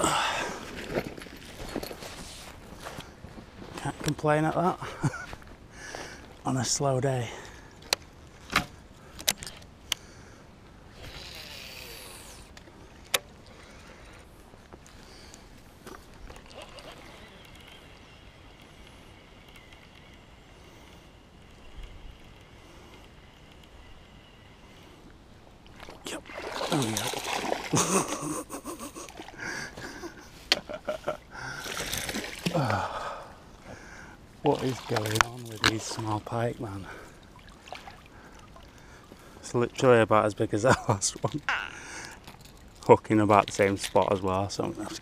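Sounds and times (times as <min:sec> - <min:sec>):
water sloshing: 0:15.8 - 0:17.8, 0:25.6 - 0:39.5
fish thrashing and splashing: 0:16.2 - 0:17.6, 0:25.7 - 0:29.4, 0:31.5 - 0:32.8, 0:34.4 - 0:36.3, 0:37.1 - 0:38.8.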